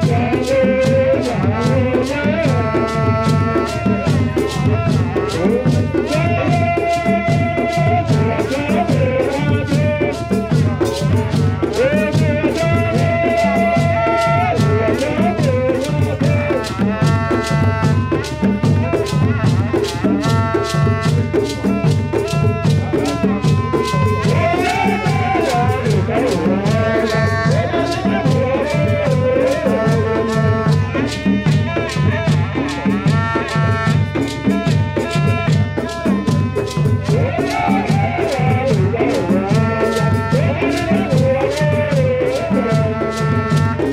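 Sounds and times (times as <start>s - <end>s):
barrel drums beating: 0.0s - 43.9s
horn playing held notes: 0.0s - 43.9s.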